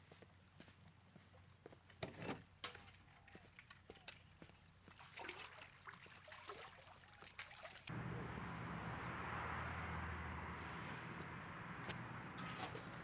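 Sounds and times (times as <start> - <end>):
low hum: 7.9 - 13.0.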